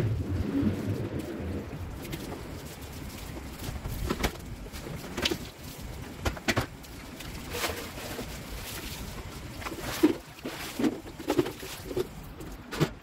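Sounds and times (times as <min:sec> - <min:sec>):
hose being moved: 0:02.0 - 0:13.0
plastic cooler knocks and clatter: 0:06.2 - 0:06.8.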